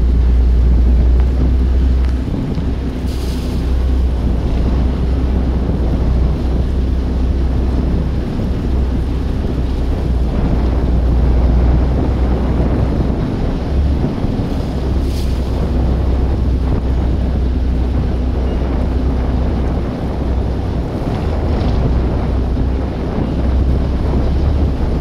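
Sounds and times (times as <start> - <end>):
boat engine running: 0.0 - 25.0
water churning: 0.0 - 25.0
wind rumble on microphone: 0.0 - 25.0.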